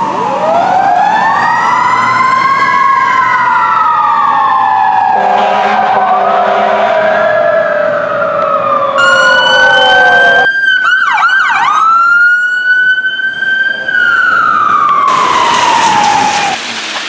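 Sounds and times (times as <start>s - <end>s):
electronic siren wailing: 8.9s - 10.6s
siren falling in pitch: 8.9s - 10.6s
horn blast: 9.0s - 10.5s.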